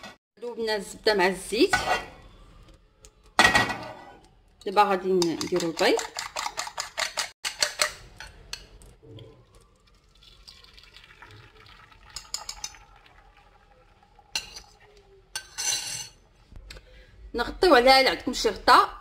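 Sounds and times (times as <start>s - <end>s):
eggs sizzling in a frying pan: 7.4s - 15.4s.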